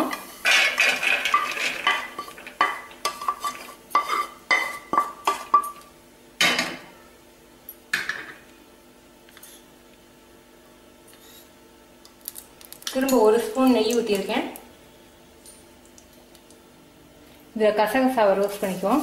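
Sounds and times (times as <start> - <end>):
spatula scraping frying pan: 0.1 - 5.7.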